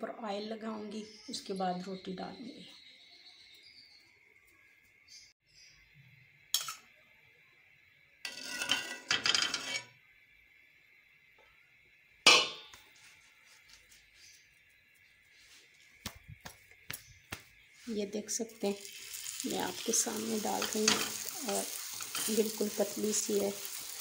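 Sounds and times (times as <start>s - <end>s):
metal utensils clinking on iron pan: 6.6s - 6.9s, 8.3s - 9.9s, 12.3s - 12.7s, 20.4s - 22.6s
metallic clank ringing: 12.3s - 12.7s.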